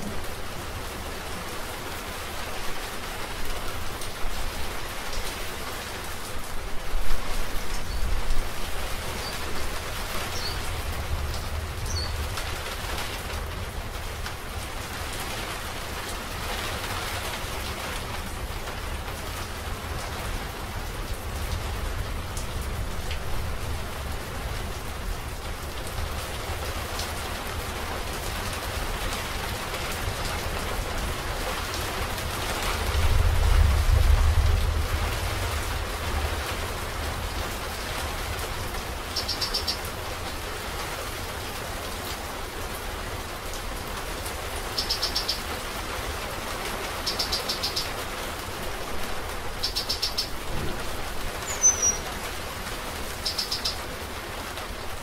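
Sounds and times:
steady rain: 0.0s - 55.0s
distant thunder rumble: 50.4s - 51.4s
bird trilling: 51.4s - 52.0s, 53.2s - 53.8s.

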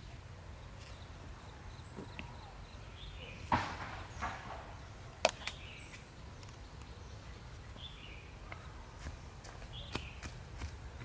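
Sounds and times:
birds chirping: 0.0s - 11.0s.

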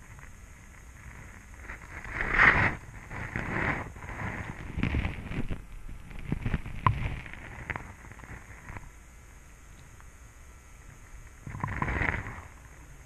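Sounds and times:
faint steady hiss: 0.0s - 13.0s
muffled underwater clicks and knocks: 4.8s - 7.9s.

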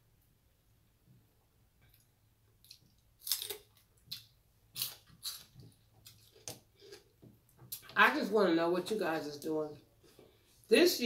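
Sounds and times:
celery crunching being chewed: 2.6s - 7.1s.

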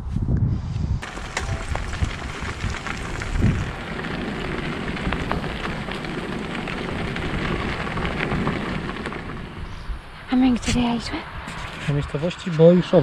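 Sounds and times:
bicycle tyres crunching on gravel: 1.0s - 10.6s.

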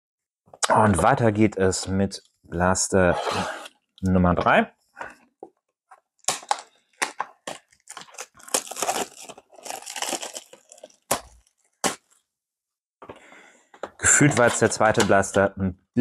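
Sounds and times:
packaging tearing and crinkling: 6.2s - 12.2s.

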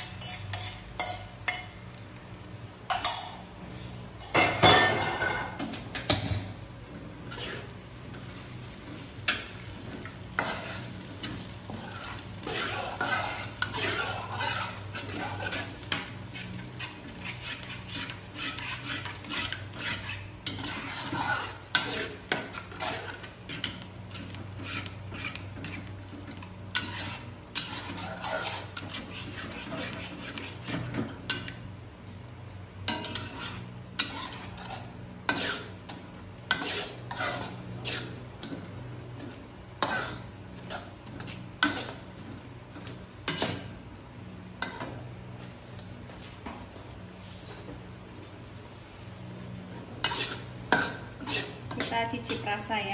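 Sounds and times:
spatula scraping a steel wok: 0.0s - 1.7s, 7.2s - 31.5s, 32.9s - 43.7s, 49.7s - 52.9s.

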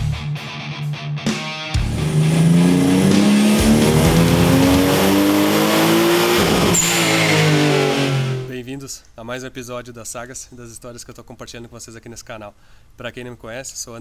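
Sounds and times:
car engine revving: 1.8s - 8.5s.

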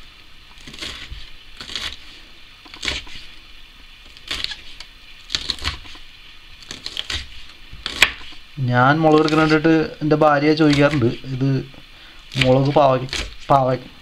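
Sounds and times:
knife chopping on wooden board: 2.7s - 3.2s, 5.3s - 6.0s, 6.6s - 8.4s, 10.7s - 11.2s, 12.4s - 13.5s.

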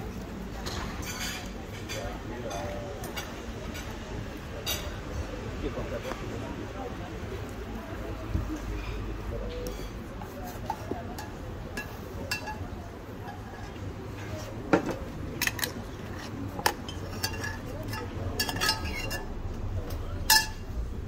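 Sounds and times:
metal spoons clinking and scraping: 1.0s - 3.9s, 9.6s - 19.4s, 20.2s - 20.8s.

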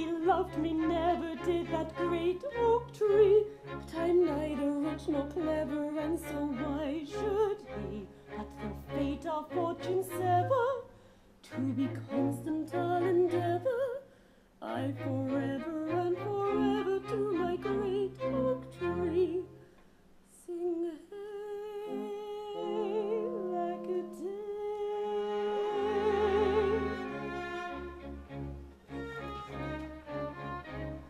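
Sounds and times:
small orchestra: 0.0s - 14.0s, 14.6s - 20.3s, 21.6s - 31.0s
operetta singing: 21.8s - 27.8s.

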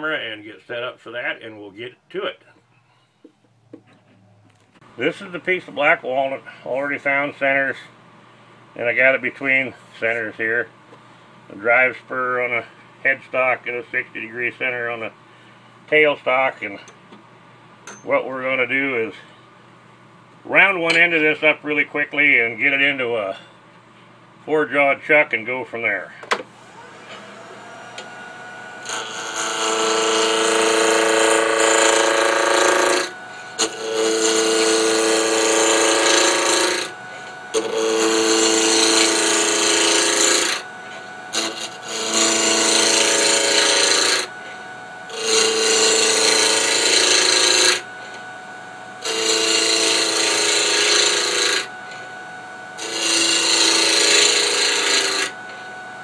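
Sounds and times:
lathe motor whine: 26.5s - 56.0s
lathe tool scraping wood: 26.6s - 48.4s, 49.0s - 52.2s, 52.8s - 55.8s.

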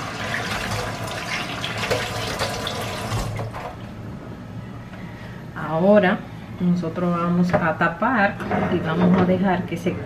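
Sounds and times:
water running from a tap: 0.0s - 3.7s.

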